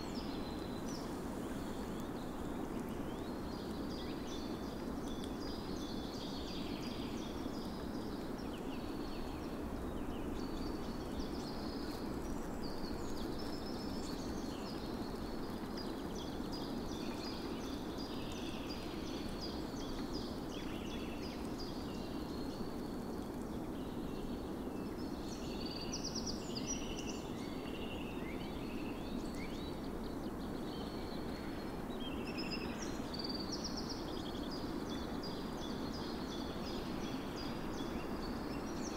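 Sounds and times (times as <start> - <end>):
low background hiss: 0.0 - 38.9.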